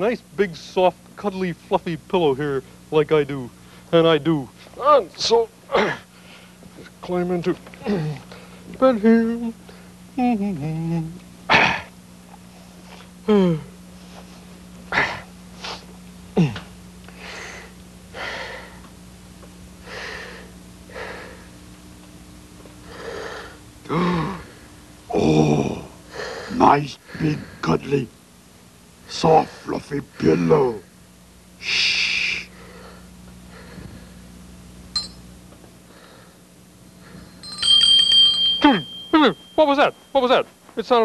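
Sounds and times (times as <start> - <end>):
steady low hum: 0.0 - 41.0
faint breathing: 6.1 - 6.6, 17.1 - 18.9, 19.8 - 21.6, 22.8 - 24.8, 26.1 - 27.7, 31.6 - 34.3, 35.8 - 37.4.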